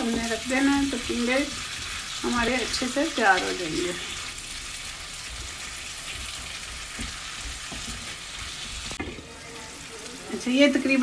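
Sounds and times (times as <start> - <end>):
vegetables sizzling in oil: 0.0 - 11.0
wooden spatula scraping: 5.2 - 10.1.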